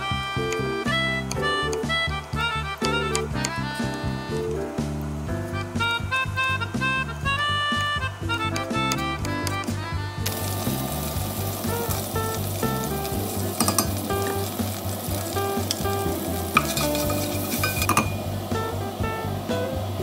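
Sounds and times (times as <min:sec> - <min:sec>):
background music: 0:00.0 - 0:20.0
garlic sizzling in hot oil: 0:10.2 - 0:20.0
spatula tapping against pot: 0:13.6 - 0:14.1, 0:15.6 - 0:18.2.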